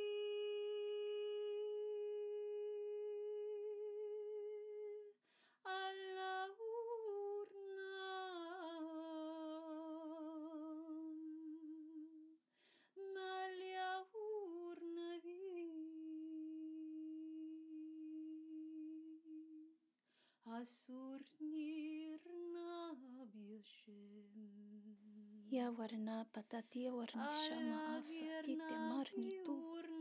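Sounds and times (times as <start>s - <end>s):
woman chanting held notes: 27.1s - 30.0s.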